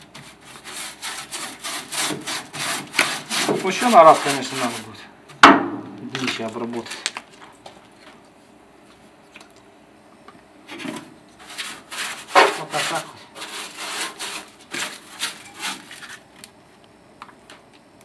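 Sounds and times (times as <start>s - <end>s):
paintbrush scrubbing metal: 0.2s - 5.0s, 11.4s - 16.0s.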